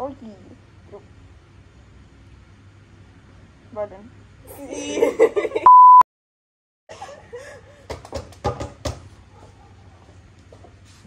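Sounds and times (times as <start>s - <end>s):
laughter: 4.7s - 5.7s
censor bleep: 5.7s - 6.0s.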